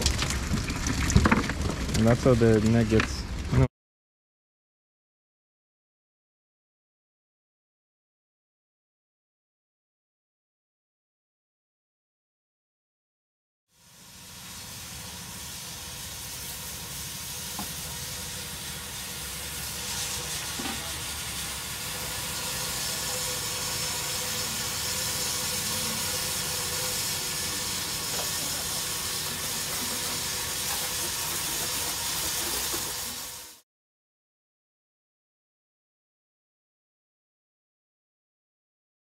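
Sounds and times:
water spraying from hose: 0:13.7 - 0:33.6.

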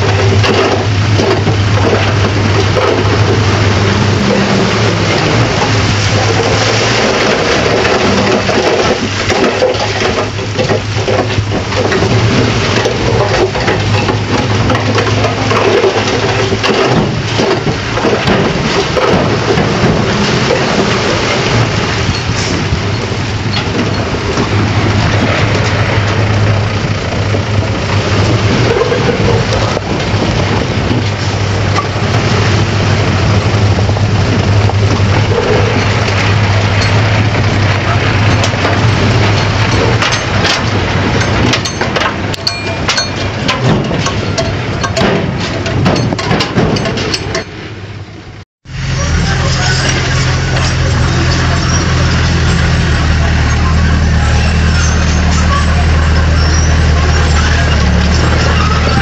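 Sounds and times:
clicks and clatter: 0:00.0 - 0:22.8, 0:23.5 - 0:47.6
bulldozer diesel engine running: 0:00.0 - 0:59.0.

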